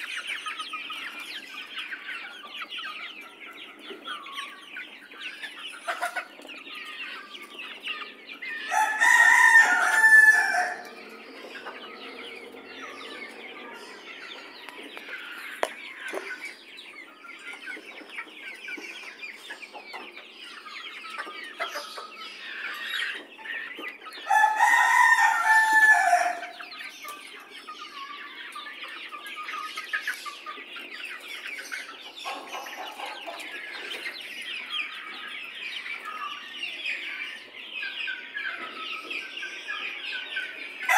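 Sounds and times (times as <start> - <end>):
chickens clucking: 0.0 - 40.9
rooster crowing: 8.7 - 10.9, 24.3 - 26.6.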